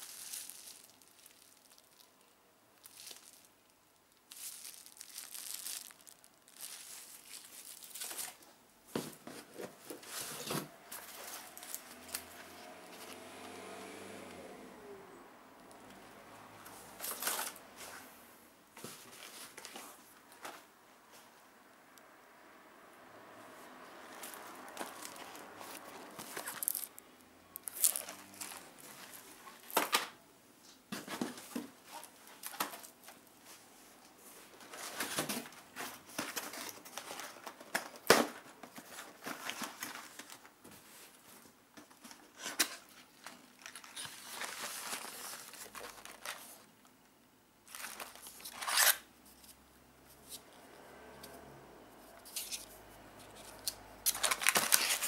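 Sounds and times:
plastic shrink-wrap crinkling: 0:00.0 - 0:08.5, 0:09.4 - 0:13.2, 0:16.9 - 0:17.6, 0:24.1 - 0:30.2, 0:31.1 - 0:33.6, 0:34.5 - 0:46.9, 0:47.6 - 0:49.1, 0:53.3 - 0:55.0.

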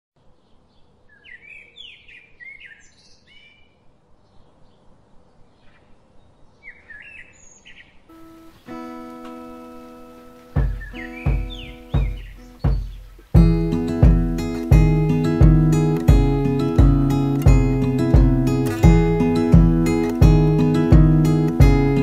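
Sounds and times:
small birds chirping: 0:00.2 - 0:22.0
acoustic guitar chord ringing: 0:08.1 - 0:22.0.

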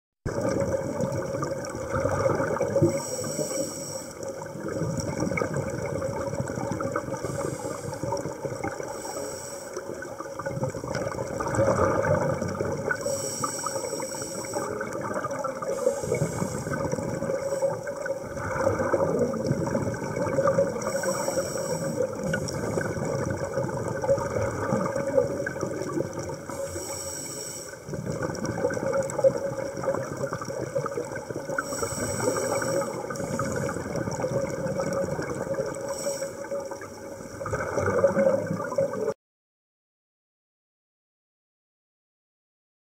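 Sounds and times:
regulator bubbling bursts: 0:00.3 - 0:03.5, 0:04.2 - 0:09.0, 0:09.8 - 0:26.6, 0:27.8 - 0:39.1
underwater rumble: 0:00.3 - 0:39.2.

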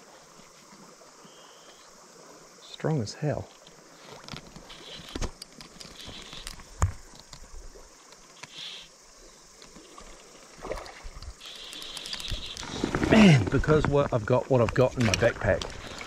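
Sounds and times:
faint stream: 0:00.0 - 0:16.0
handling clicks and knocks: 0:04.2 - 0:07.5
fishing reel winding: 0:11.4 - 0:12.7.

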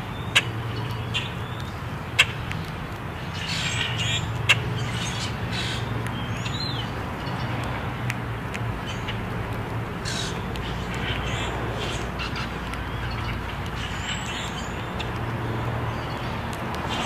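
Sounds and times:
grackles calling: 0:03.2 - 0:07.5, 0:08.8 - 0:09.3, 0:10.0 - 0:15.2.

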